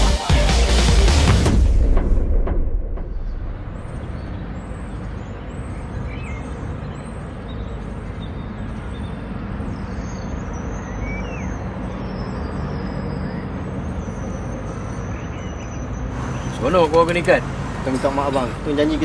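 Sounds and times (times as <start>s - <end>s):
distant traffic rumble: 1.7s - 19.0s
faint bird chirps: 3.3s - 16.7s.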